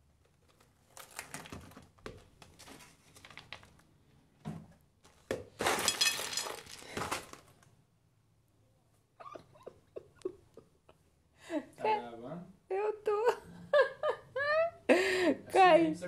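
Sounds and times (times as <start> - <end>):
popcorn spilling onto a plate: 5.5 - 7.6.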